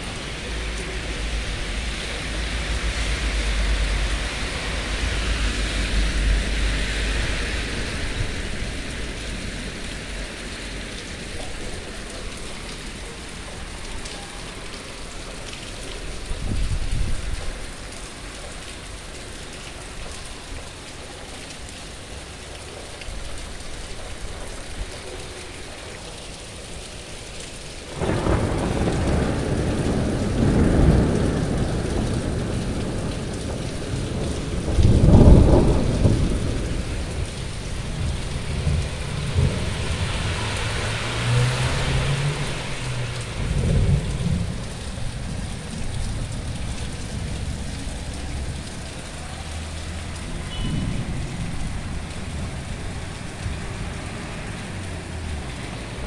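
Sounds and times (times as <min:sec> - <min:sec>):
steady rain falling: 0:00.0 - 0:56.0
thunder rumbling: 0:28.0 - 0:48.5.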